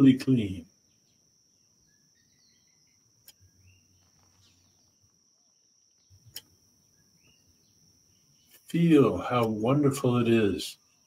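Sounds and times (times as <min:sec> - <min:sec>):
faint chirps: 0:00.0 - 0:11.0
faint high-pitched whine: 0:00.0 - 0:11.0
soft clicks: 0:03.2 - 0:03.4, 0:05.9 - 0:06.6.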